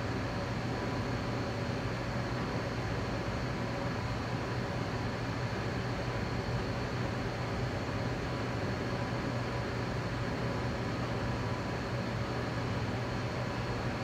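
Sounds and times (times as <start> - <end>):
mechanical hum and hiss: 0.0 - 14.0.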